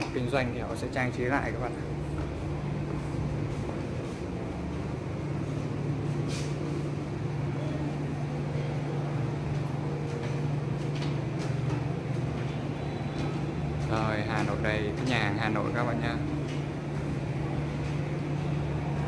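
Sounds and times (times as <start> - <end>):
low mechanical hum: 0.0 - 19.0
street noise: 0.0 - 19.0.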